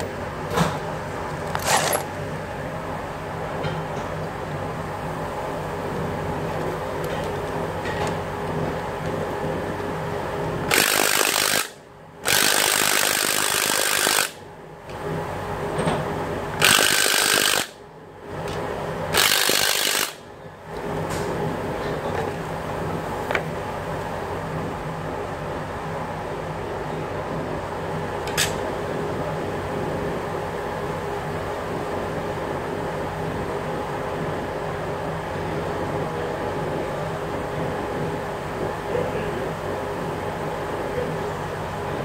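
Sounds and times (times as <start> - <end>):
workshop hum: 0.0 - 42.0
power tool hissing and rattling: 10.7 - 14.4, 16.6 - 17.8, 19.2 - 20.2.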